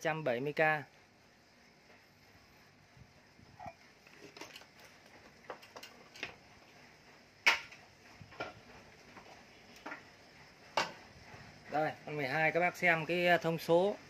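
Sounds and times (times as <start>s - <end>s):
small parts clicking and knocking: 4.0s - 6.5s.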